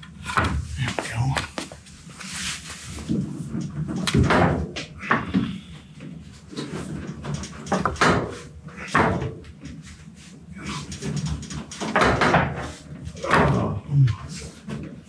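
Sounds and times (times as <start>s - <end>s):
straining noises: 0.2s - 15.0s
knocks and creaks: 2.9s - 15.0s.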